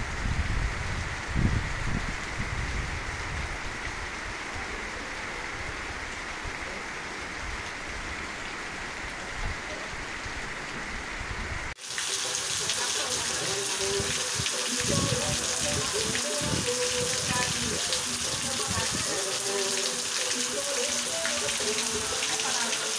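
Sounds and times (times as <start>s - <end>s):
wind buffeting microphone: 0.0s - 4.4s, 14.0s - 19.2s
heavy rain falling: 0.0s - 22.9s.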